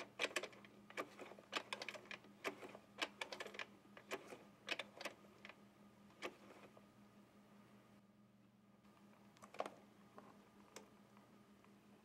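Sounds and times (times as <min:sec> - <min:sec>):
sewing machine needle clicks: 0:00.0 - 0:05.6
faint steady hum: 0:00.0 - 0:12.0.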